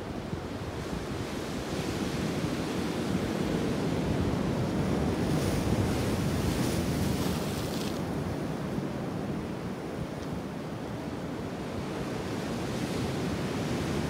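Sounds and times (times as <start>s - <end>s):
wind buffeting microphone: 0.3s - 8.7s
surf washing on rocks: 2.5s - 8.4s.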